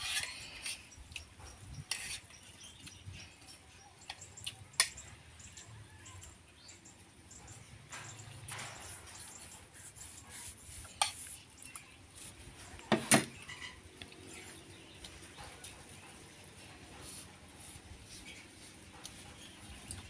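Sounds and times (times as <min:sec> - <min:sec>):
faint scrapes and handling: 0:01.8 - 0:02.4, 0:08.0 - 0:12.8, 0:17.0 - 0:19.6.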